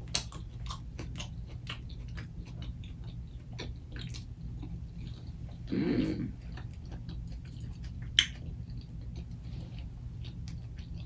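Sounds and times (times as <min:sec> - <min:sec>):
close chewing: 0:00.0 - 0:11.0
wet mouth clicks and smacks: 0:07.4 - 0:09.4.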